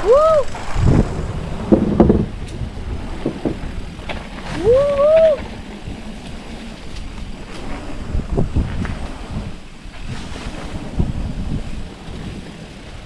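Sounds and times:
rider whooping: 0.0 - 1.6, 4.4 - 5.6
bike tyres rumbling on rocky trail: 0.0 - 13.0
wind on the microphone: 0.0 - 13.0
bike knocking over rocks: 0.5 - 9.1.

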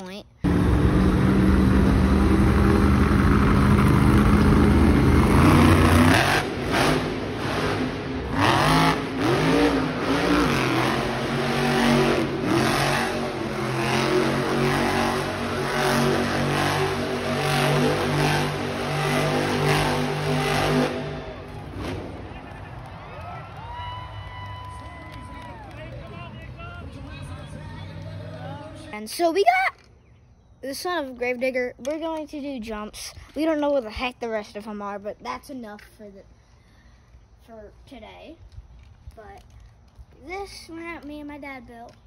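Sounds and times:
monster truck engine revving: 0.4 - 23.3.

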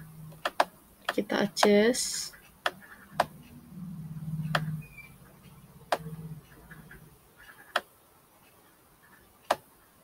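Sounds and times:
low hum: 0.0 - 7.4
computer mouse clicks: 0.3 - 1.8, 2.6 - 3.6, 4.4 - 7.9, 9.0 - 9.7.

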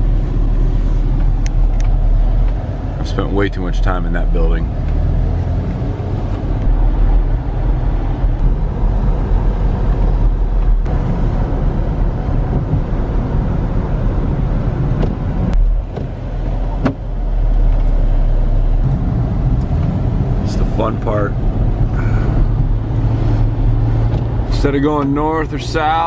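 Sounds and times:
road and engine rumble in car: 0.0 - 26.0.

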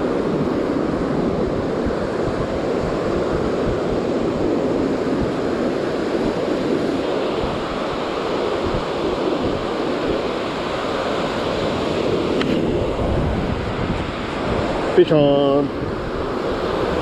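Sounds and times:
ocean surf breaking: 0.0 - 17.0
wind buffeting microphone: 0.0 - 17.0.

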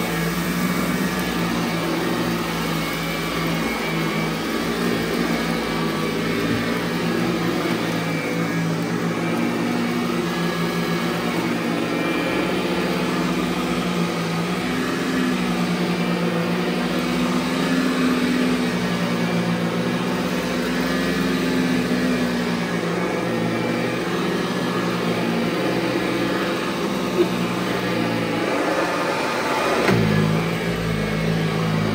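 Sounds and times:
upright vacuum cleaner running: 0.0 - 31.9.

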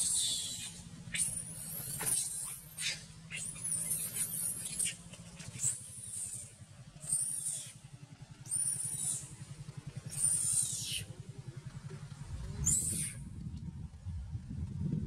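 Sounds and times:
monkey squeaking: 0.0 - 7.8, 8.4 - 9.4, 10.1 - 11.1, 12.6 - 13.2.

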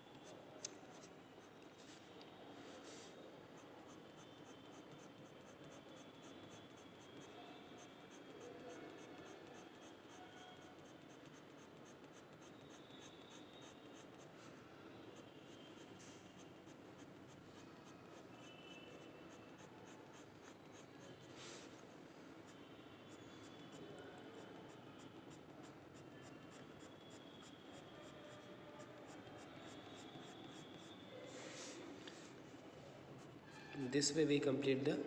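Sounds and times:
pen scratching on paper: 3.6 - 14.4, 15.0 - 31.0.

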